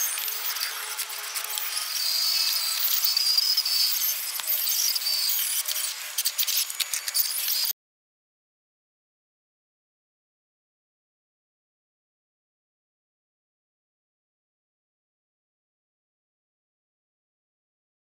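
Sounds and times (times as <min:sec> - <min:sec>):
electric motor and gears whining: 0:00.0 - 0:07.7.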